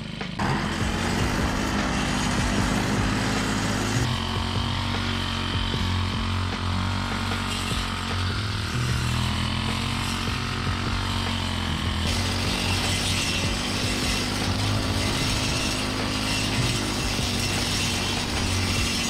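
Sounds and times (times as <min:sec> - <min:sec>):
blade cutting grass: 0:00.0 - 0:19.0
brush cutter engine running: 0:00.0 - 0:19.0.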